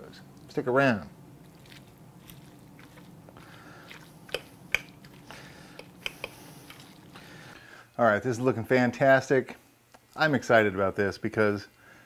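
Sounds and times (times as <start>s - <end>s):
meat tearing: 1.4s - 5.5s.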